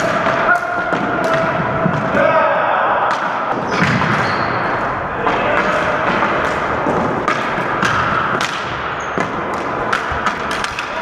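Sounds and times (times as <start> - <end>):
sticks clacking on ball and floor: 5.2 - 11.0.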